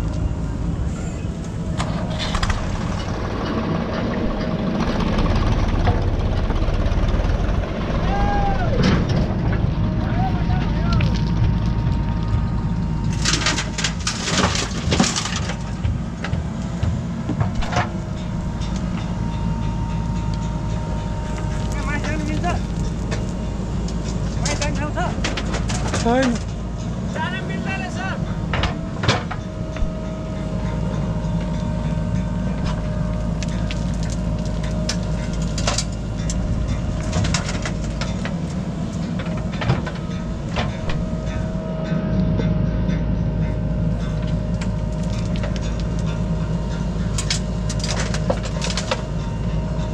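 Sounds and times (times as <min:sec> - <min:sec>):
diesel engine running: 0:00.0 - 0:49.9
steady whine: 0:00.0 - 0:49.9
soil and stones clattering: 0:13.1 - 0:15.9, 0:47.1 - 0:49.1.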